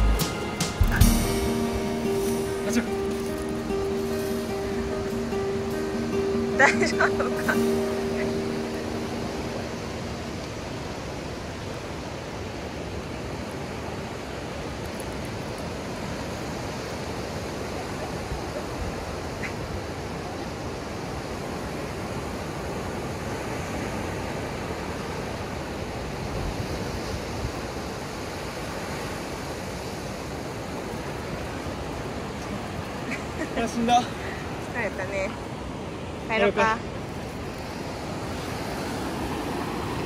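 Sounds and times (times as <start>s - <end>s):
ocean surf breaking: 0.0s - 40.0s
wind: 0.0s - 40.0s.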